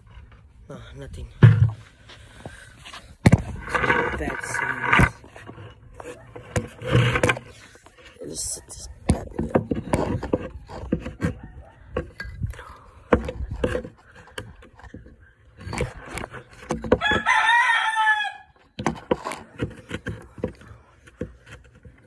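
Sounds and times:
knocks and clatter of handling: 9.0s - 17.3s, 18.6s - 22.0s
rooster crowing: 17.0s - 18.6s.

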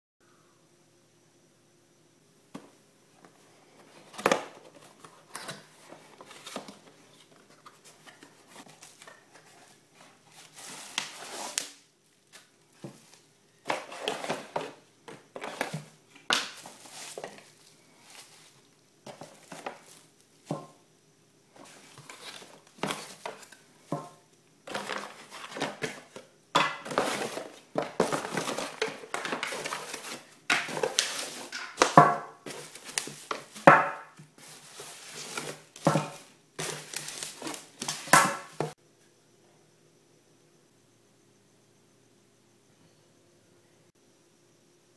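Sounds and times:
cardboard and bubble wrap crinkling: 3.8s - 20.6s, 21.6s - 23.6s, 24.7s - 26.2s, 26.8s - 38.8s.

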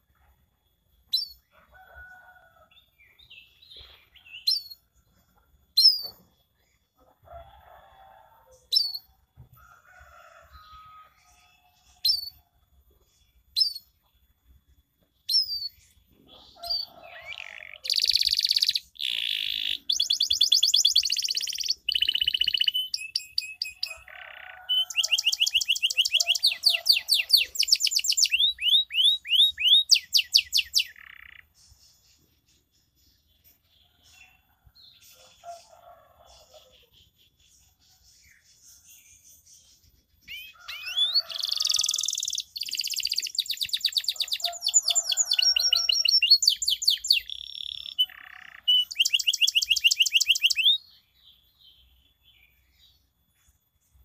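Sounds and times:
canary chirps: 1.0s - 2.3s, 3.0s - 4.9s, 5.7s - 6.9s, 8.6s - 9.2s, 13.4s - 14.1s, 15.2s - 35.7s, 36.3s - 51.1s.

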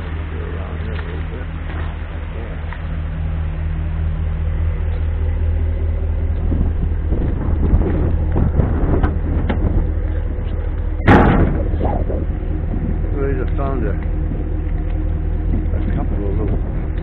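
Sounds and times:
vehicle engine idling: 0.0s - 17.0s
loud knock: 11.0s - 11.9s.

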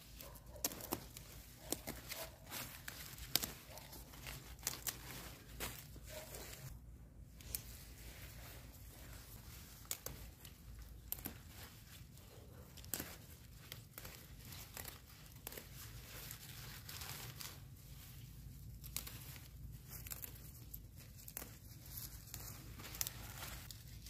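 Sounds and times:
leaves rustling: 0.0s - 24.0s
stems snapping and tearing: 0.1s - 6.7s, 9.7s - 16.4s, 18.7s - 23.8s.

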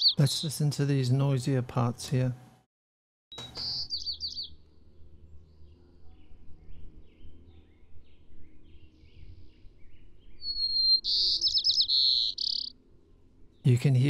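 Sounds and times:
sparrow song whistle and trills: 0.0s - 0.5s, 3.3s - 4.7s, 5.3s - 12.8s.

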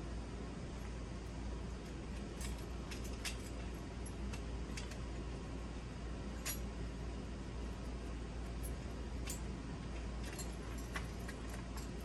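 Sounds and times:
steady low hum: 0.0s - 12.0s
small metal parts clicking: 1.8s - 5.1s, 6.4s - 6.7s, 8.6s - 12.0s.

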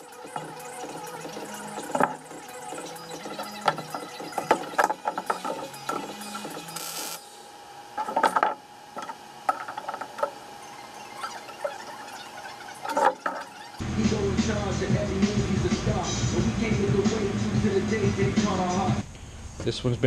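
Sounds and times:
background music with bass line: 0.0s - 6.8s, 13.8s - 19.0s
steel tubing clinking and knocking: 3.3s - 6.6s, 8.0s - 10.4s.

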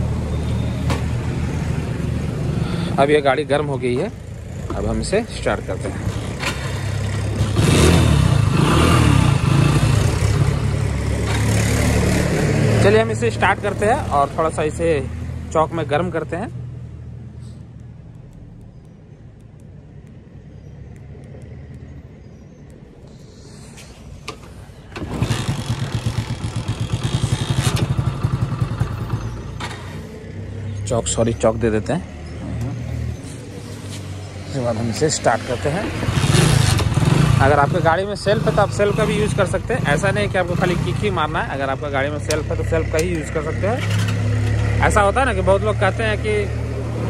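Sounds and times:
motorcycle engine revving: 4.3s - 14.6s, 24.8s - 31.0s, 34.3s - 47.0s
motorcycle engine running: 25.0s - 29.6s.

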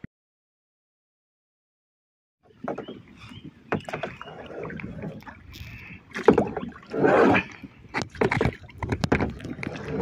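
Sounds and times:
paddle water splashing: 2.4s - 10.0s.

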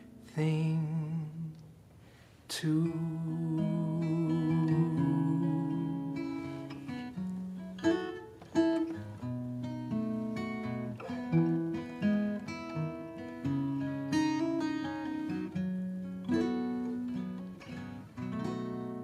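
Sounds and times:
acoustic guitar strumming chords: 0.0s - 1.6s, 2.7s - 19.0s.

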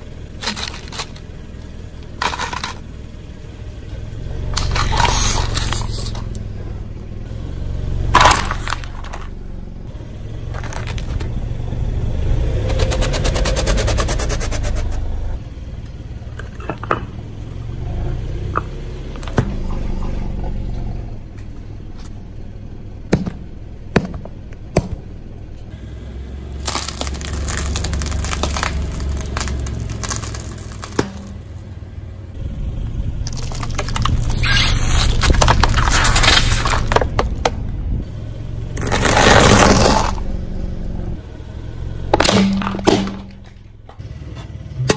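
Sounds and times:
car tyres rolling low rumble: 0.0s - 44.9s
objects cracking and popping: 0.3s - 1.3s, 2.0s - 2.8s, 4.6s - 6.4s, 8.1s - 9.4s, 10.5s - 11.4s, 26.6s - 31.4s, 33.2s - 37.7s, 38.8s - 40.2s, 42.1s - 43.7s.

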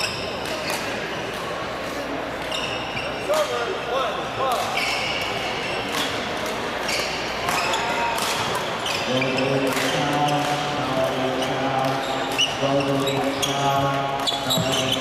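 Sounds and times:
sneakers squeaking on court floor: 0.0s - 1.3s, 2.4s - 3.6s, 4.5s - 15.0s
rackets hitting shuttlecock: 0.2s - 1.5s, 4.5s - 8.8s.

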